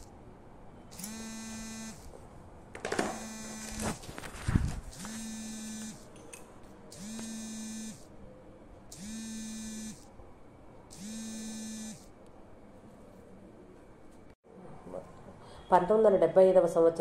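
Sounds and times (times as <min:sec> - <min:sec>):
electric buzzing: 0:00.9 - 0:02.1, 0:03.0 - 0:06.1, 0:06.9 - 0:08.1, 0:08.9 - 0:10.1, 0:10.9 - 0:12.1.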